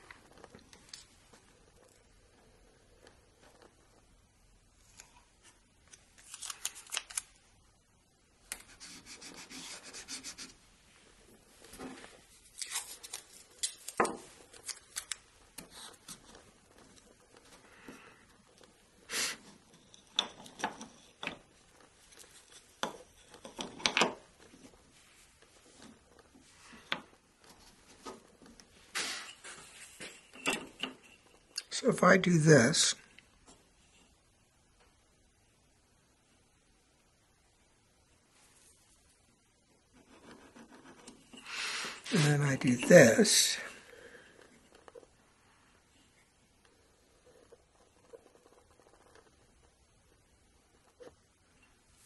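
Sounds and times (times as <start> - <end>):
hands rubbing wooden strips: 8.5 - 10.6, 40.0 - 43.6
tape being pulled and torn: 12.5 - 15.2.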